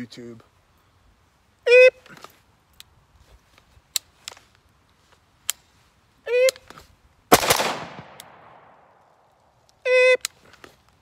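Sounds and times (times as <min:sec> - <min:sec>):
rifle shot with echo: 0:07.3 - 0:09.0.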